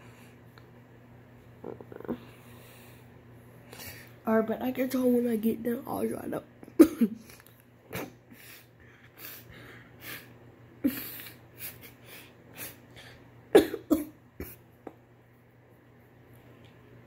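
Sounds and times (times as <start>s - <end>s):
girl coughing: 6.8s - 7.2s, 13.6s - 14.6s.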